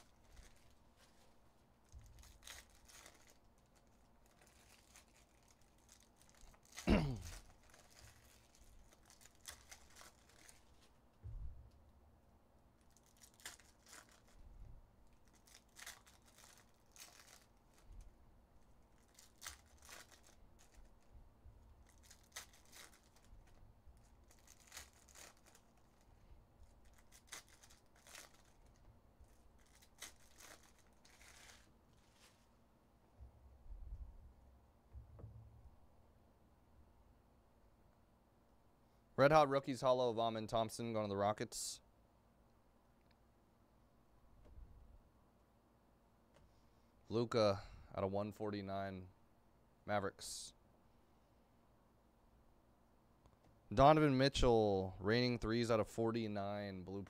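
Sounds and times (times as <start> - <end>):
card wrappers tearing and crinkling: 0.0 - 10.9, 12.8 - 14.4, 15.0 - 18.1, 18.9 - 21.1, 21.8 - 32.4
cards rustling and clicking: 26.8 - 32.5.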